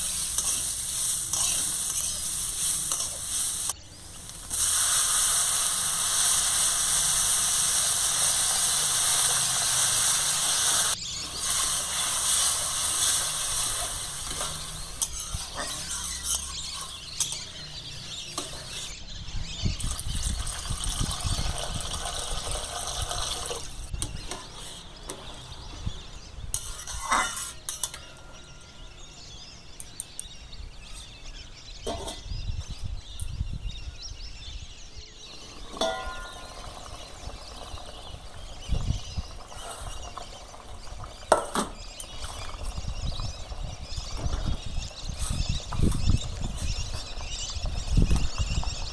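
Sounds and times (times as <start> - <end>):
water hissing in hot wok: 0.0 - 17.2, 19.8 - 23.9, 35.3 - 47.2
bubbling: 19.8 - 23.9.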